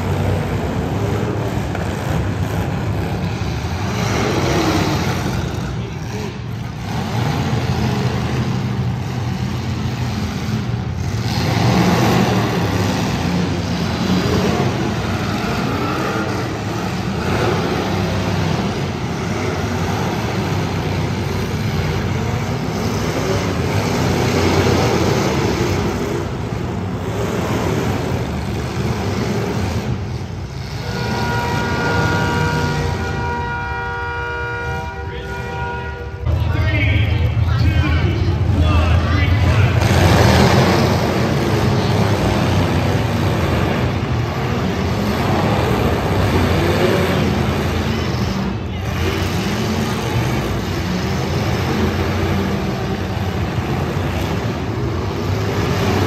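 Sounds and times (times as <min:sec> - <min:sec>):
car engines rumbling under load: 0:00.0 - 0:56.0
horn sounding: 0:30.5 - 0:39.9.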